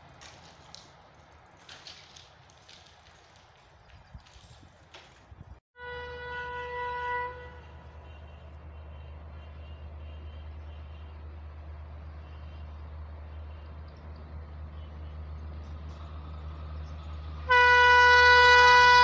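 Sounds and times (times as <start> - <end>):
low rumble of train: 0.0 - 19.0
train horn: 5.8 - 11.1, 17.4 - 19.0.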